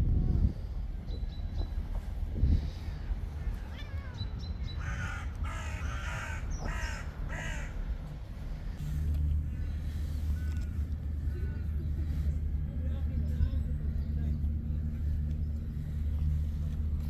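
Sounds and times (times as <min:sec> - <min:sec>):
low rumble: 0:00.0 - 0:17.0
crow cawing: 0:04.8 - 0:07.8.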